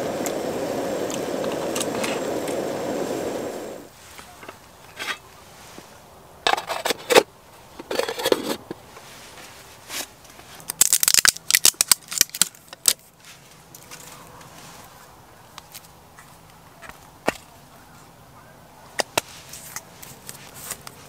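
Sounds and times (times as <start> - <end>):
metal lid clanking on tin: 7.8 - 8.6.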